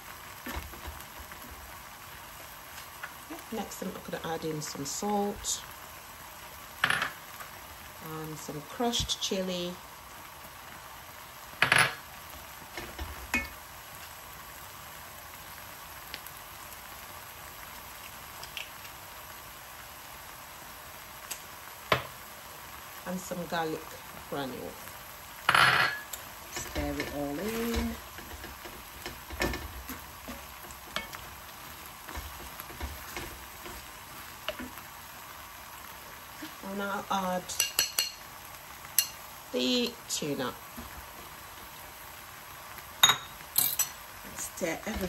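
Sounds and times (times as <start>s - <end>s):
sauce sizzling in a pan: 0.0s - 45.0s
wooden spatula knocking on pan: 21.9s - 22.1s, 32.1s - 33.8s
wooden spoon stirring sauce: 26.6s - 34.9s.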